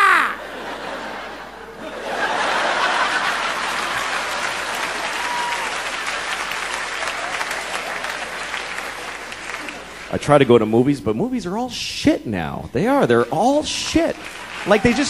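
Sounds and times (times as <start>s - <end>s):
person whooping: 0.0s - 0.4s
audience laughing: 0.0s - 5.2s, 14.2s - 15.0s
audience applauding: 2.2s - 10.1s, 14.2s - 15.0s.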